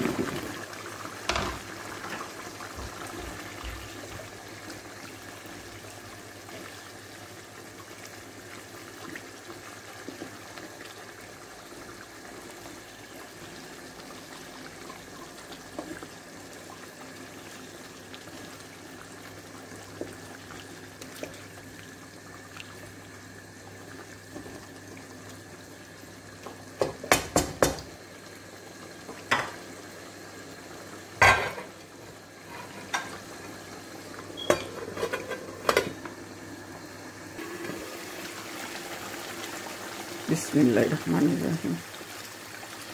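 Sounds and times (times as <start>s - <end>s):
curry simmering in a pan: 0.2s - 31.1s
wooden spatula knocking on pan: 26.8s - 27.9s.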